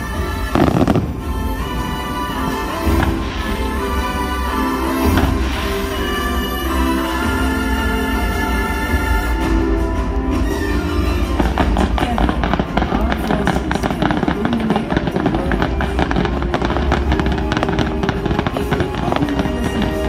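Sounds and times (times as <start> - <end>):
loud show music: 0.0 - 20.0
fireworks popping and crackling: 0.5 - 2.1, 11.4 - 20.0.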